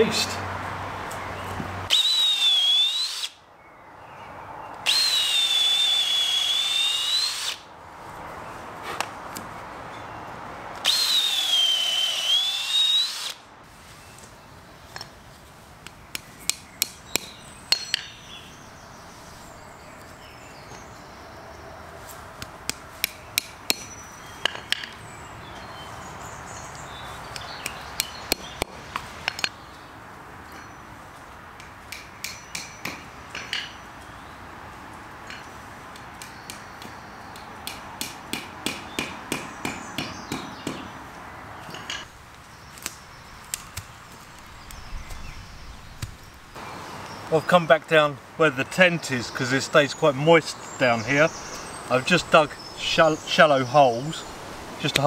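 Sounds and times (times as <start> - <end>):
power drill boring into log: 1.9 - 3.3, 4.9 - 7.6, 10.8 - 13.4.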